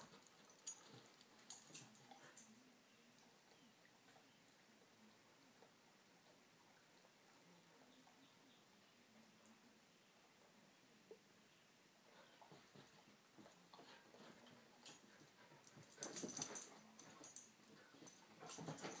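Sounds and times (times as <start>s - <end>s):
dogs scuffling and play-fighting: 0.0s - 2.5s, 12.1s - 19.0s.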